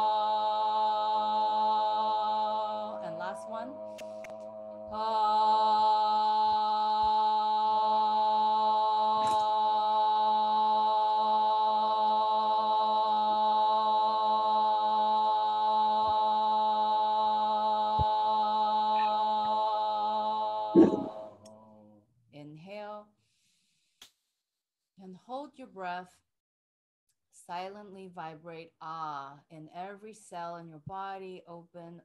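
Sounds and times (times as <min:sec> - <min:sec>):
woman chanting a held note: 0:02.8 - 0:04.0.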